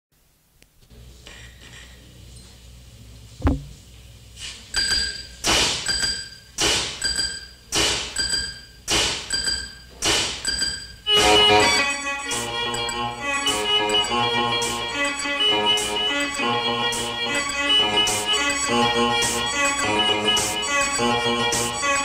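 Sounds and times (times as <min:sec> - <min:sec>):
low hum: 0:03.3 - 0:03.9
percussion thud: 0:03.4 - 0:03.8, 0:05.4 - 0:08.3, 0:09.9 - 0:10.7
bright ringing metal strikes: 0:04.8 - 0:22.0.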